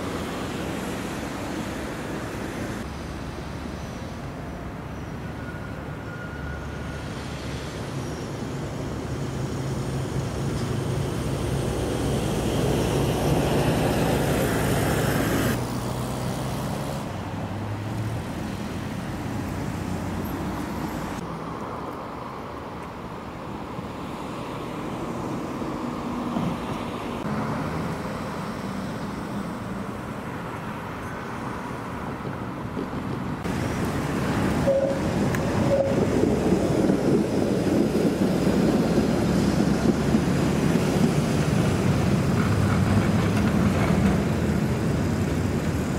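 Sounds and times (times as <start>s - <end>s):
wheel and road noise: 0.0s - 45.9s
tram motor hum: 32.7s - 45.9s.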